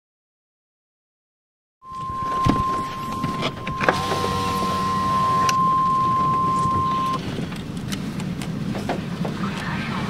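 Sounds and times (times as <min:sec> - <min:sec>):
steady high electronic tone: 0:01.8 - 0:07.2
low interference buzz: 0:01.8 - 0:07.3
power window motor whining: 0:01.9 - 0:07.2.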